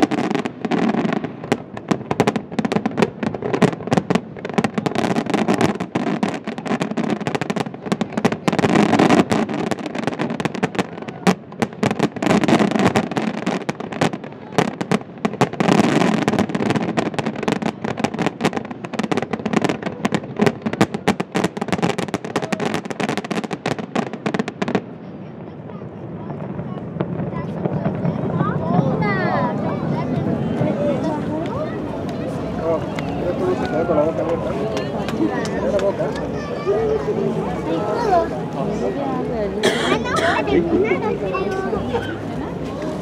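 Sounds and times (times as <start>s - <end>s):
fireworks bursts and crackling: 0.0s - 43.0s.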